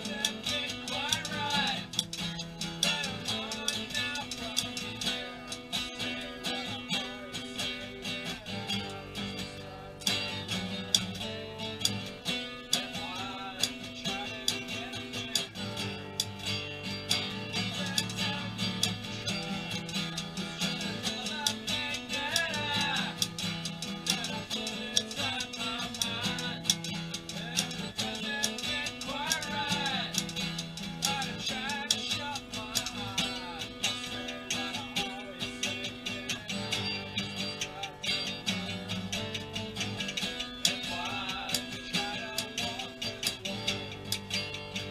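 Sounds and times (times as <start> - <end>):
typewriter keys clacking: 0.0 - 9.0, 10.1 - 44.9
person singing: 0.0 - 44.9
strummed acoustic guitar: 0.0 - 44.9.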